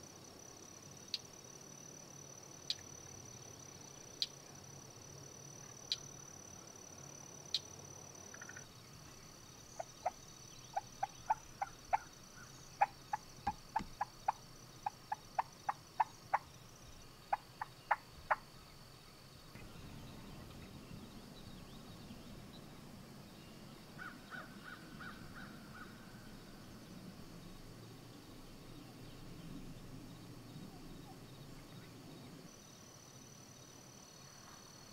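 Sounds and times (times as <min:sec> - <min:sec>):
wild turkeys clucking: 0:09.8 - 0:12.2, 0:12.8 - 0:16.5.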